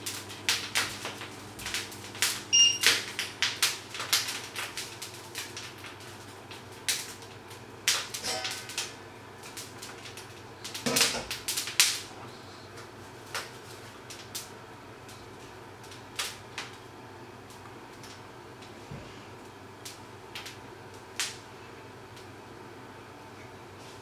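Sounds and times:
food frying crackles and pops: 0.0s - 24.0s.

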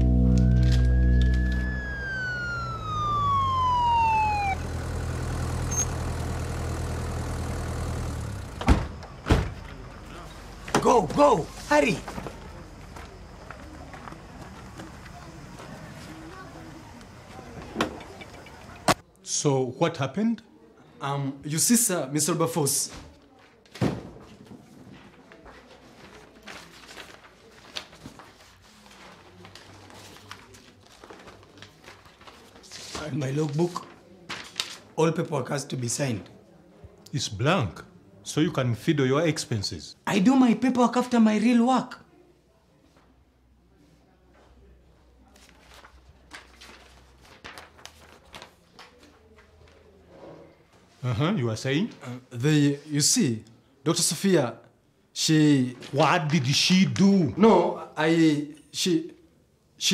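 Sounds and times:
siren winding down: 0.0s - 6.3s
engine running: 0.0s - 8.7s
paper rustling: 24.8s - 34.9s, 45.3s - 49.9s.

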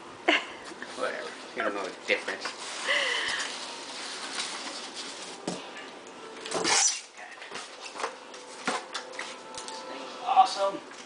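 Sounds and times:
foam insert scraping out of box: 6.5s - 7.2s.

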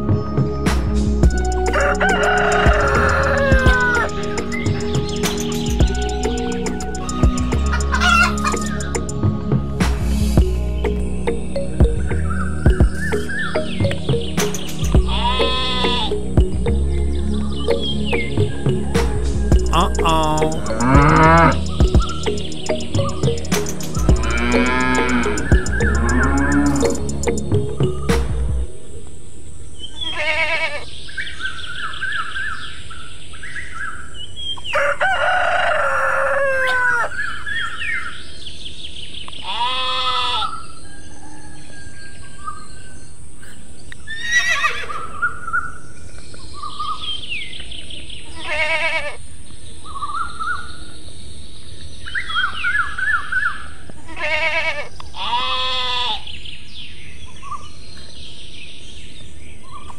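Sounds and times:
small birds chirping: 0.0s - 34.8s
rooster crowing: 1.5s - 5.2s, 6.8s - 8.7s, 34.7s - 37.2s
hens clucking: 1.6s - 9.1s
quavering bleats: 15.1s - 16.2s, 20.1s - 21.6s, 24.2s - 25.4s, 30.0s - 30.9s, 39.4s - 40.5s, 48.4s - 49.2s, 54.1s - 56.2s.

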